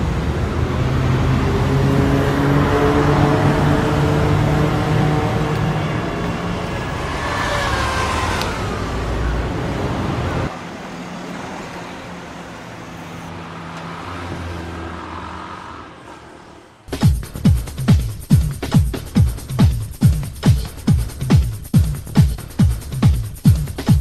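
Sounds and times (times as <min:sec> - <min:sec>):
car passing engine and tyre rumble: 0:00.0 - 0:16.9.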